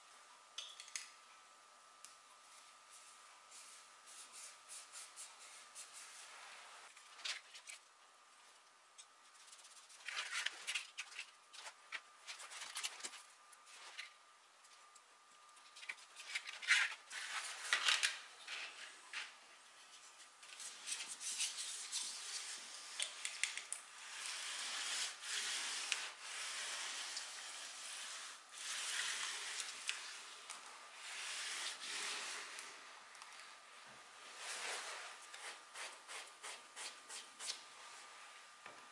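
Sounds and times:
wood veneer strips crackling: 0:14.8 - 0:33.6
iron rubbing over veneer: 0:24.0 - 0:32.8.

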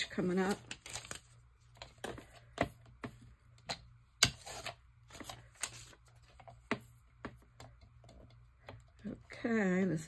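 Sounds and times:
magazine page rustling: 0:00.0 - 0:01.9.

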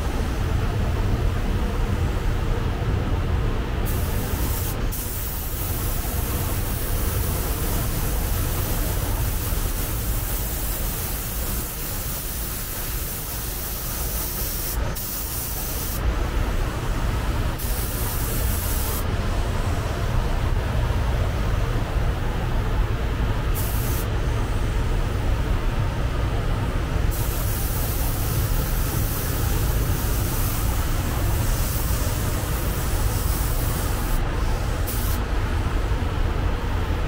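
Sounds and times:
air gun hissing: 0:03.9 - 0:16.0, 0:17.6 - 0:19.1, 0:23.6 - 0:24.1, 0:27.1 - 0:35.2.

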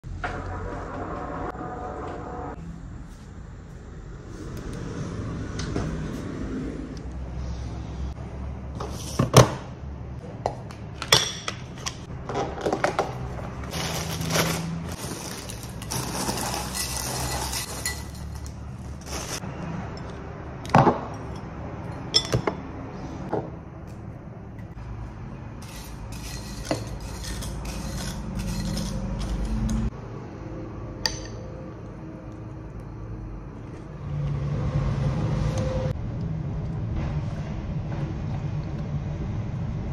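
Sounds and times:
rustling: 0:13.7 - 0:19.4.

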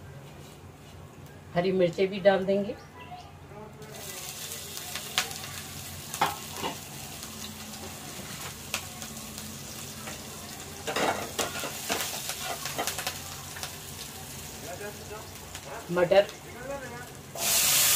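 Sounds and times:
spices sizzling in hot oil: 0:03.8 - 0:17.9
spatula scraping a pan: 0:10.9 - 0:12.9.

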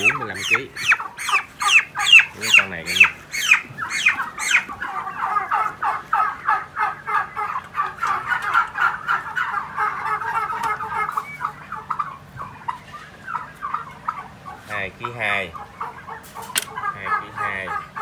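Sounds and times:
young turkeys calling: 0:00.0 - 0:18.0.

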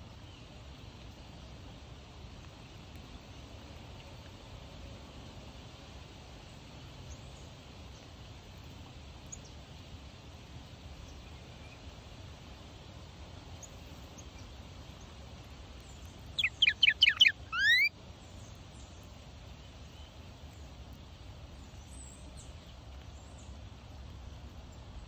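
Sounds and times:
cardinal singing whistled notes: 0:16.4 - 0:17.9.

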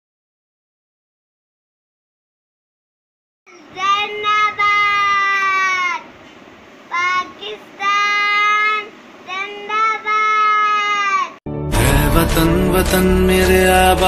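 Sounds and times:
young child singing: 0:03.5 - 0:06.1, 0:06.9 - 0:11.4.

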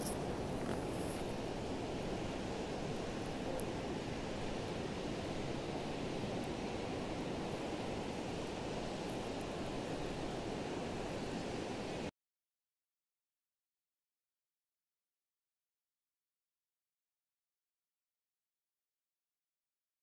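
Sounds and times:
surf washing on beach: 0:00.0 - 0:12.1
wind noise on microphone: 0:00.0 - 0:12.1.

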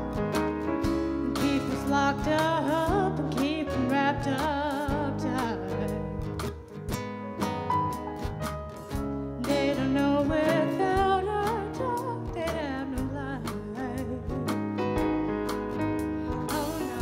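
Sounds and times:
strummed guitar: 0:00.0 - 0:17.0
person singing with vibrato: 0:01.3 - 0:06.3, 0:09.4 - 0:14.6, 0:16.3 - 0:17.0.

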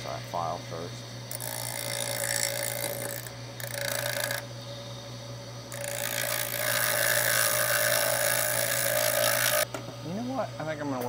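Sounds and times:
grinder motor humming: 0:00.0 - 0:11.0
hand file rasping on metal: 0:01.3 - 0:04.4, 0:05.7 - 0:09.6.

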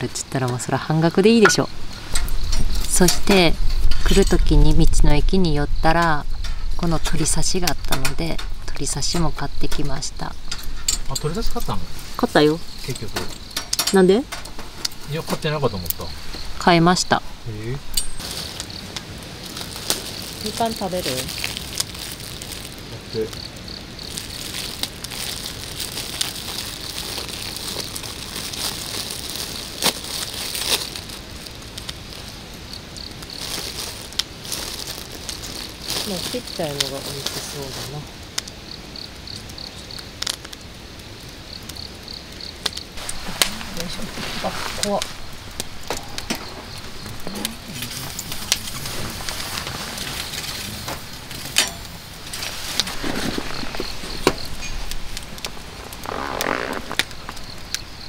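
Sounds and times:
tongs shifting burning log: 0:00.0 - 0:05.1, 0:05.8 - 0:38.6, 0:39.3 - 0:57.8
wood fire crackling: 0:00.0 - 0:58.0
plastic bag crinkling: 0:18.2 - 0:38.0, 0:43.0 - 0:57.7.

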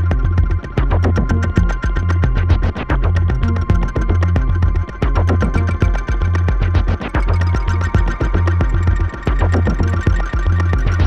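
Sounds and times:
deep pulsing synthesizer bass: 0:00.0 - 0:11.0
rapid electronic ticking: 0:00.0 - 0:11.0
steady high tone: 0:07.1 - 0:11.0.

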